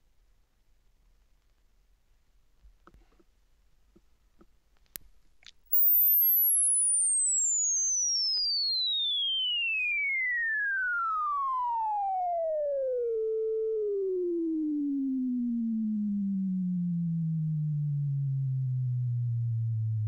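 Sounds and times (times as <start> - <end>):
sine sweep test tone: 5.7 - 20.0.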